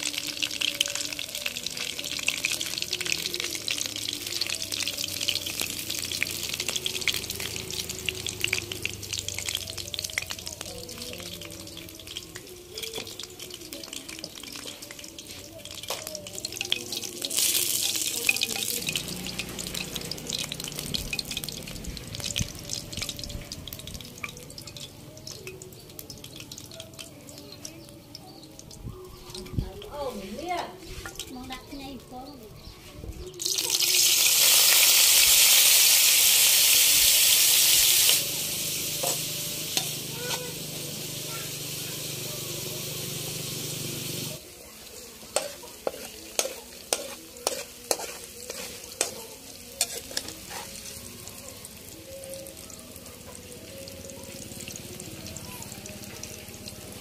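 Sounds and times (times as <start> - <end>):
fish sizzling in hot oil: 0.0 - 32.4, 33.2 - 57.0
oil hissing: 33.8 - 44.4.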